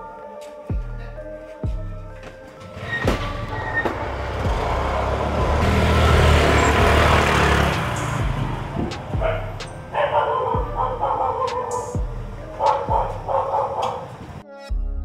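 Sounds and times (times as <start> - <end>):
motorbike engines revving: 2.7 - 14.4.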